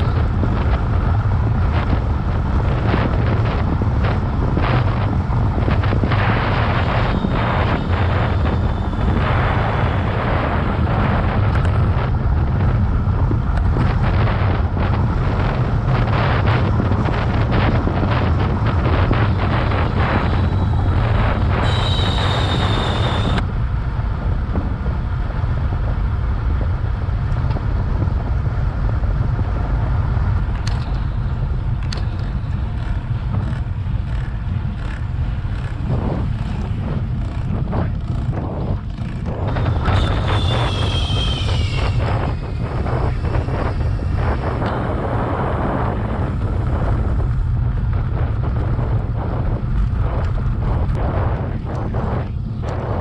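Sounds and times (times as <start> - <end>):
wind buffeting microphone: 0.0 - 53.0
brief high squeal: 21.6 - 23.4, 39.6 - 42.6.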